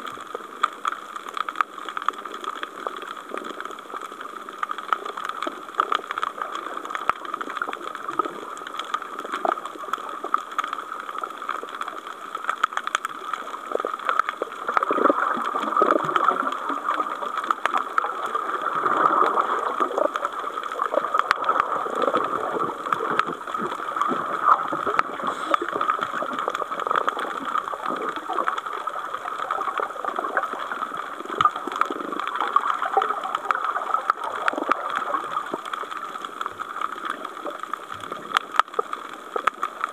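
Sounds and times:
bubbling and gurgling: 0.0 - 39.9
underwater watery hiss: 25.1 - 26.3.

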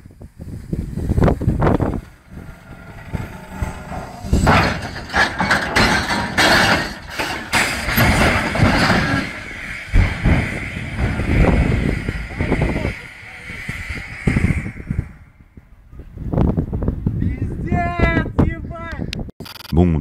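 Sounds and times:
rushing rumble of spilling load: 0.0 - 17.8
heavy metal bangs and crashes: 0.8 - 15.5.

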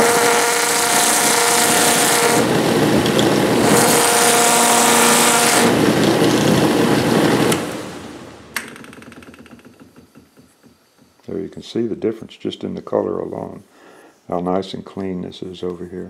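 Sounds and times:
sanding wheel grinding wood: 0.0 - 7.6.

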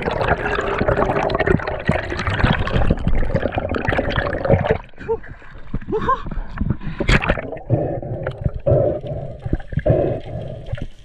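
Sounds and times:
water gurgling and sloshing: 0.0 - 11.0
person laughing: 5.8 - 6.5.

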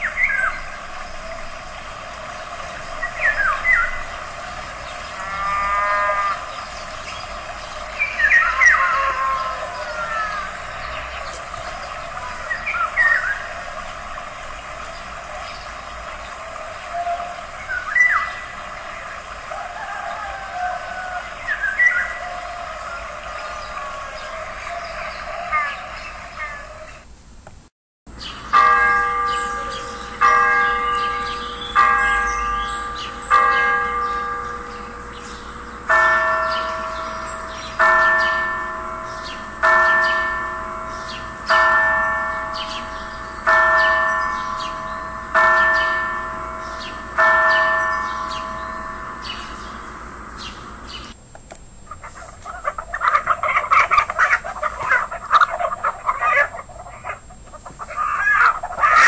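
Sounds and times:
church bells tolling: 28.2 - 51.2
hens clucking: 51.8 - 59.0.

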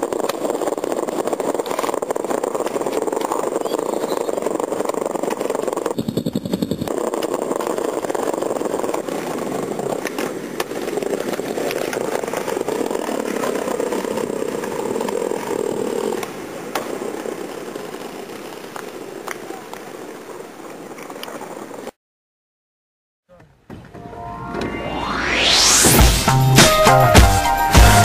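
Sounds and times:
skateboard clacks: 0.0 - 21.9
skateboard wheels rolling on bricks: 0.0 - 22.0.

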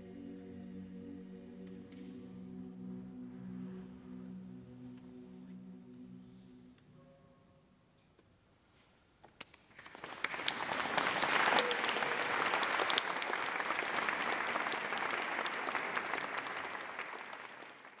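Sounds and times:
audience applause: 9.7 - 18.0.

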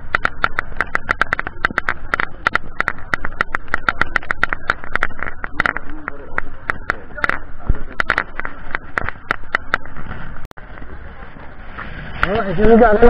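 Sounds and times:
rapid clicks and rattles: 0.0 - 10.6.

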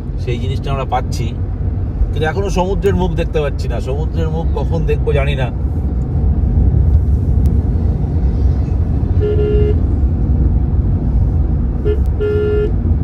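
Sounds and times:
car road rumble: 0.0 - 13.0
vehicle horn honking: 9.2 - 9.8, 11.8 - 12.8.

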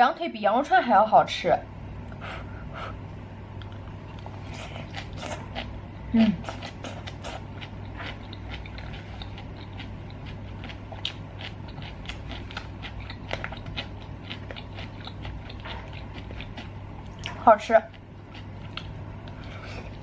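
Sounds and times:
close chewing with wet crunches: 3.6 - 20.0
person humming: 6.1 - 7.0.

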